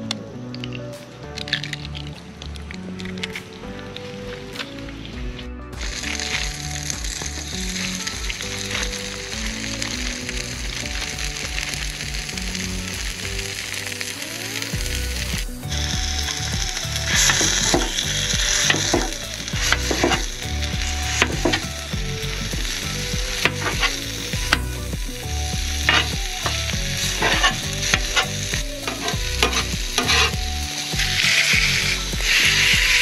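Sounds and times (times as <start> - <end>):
sausage and eggs sizzling on griddle: 5.8 - 33.0
metal spatula scraping griddle: 27.2 - 30.4.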